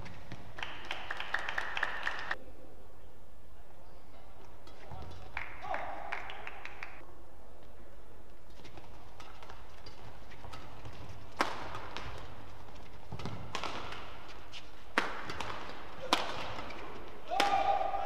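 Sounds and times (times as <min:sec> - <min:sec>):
low hall hum: 0:00.0 - 0:18.0
rackets hitting shuttlecock: 0:08.5 - 0:18.0.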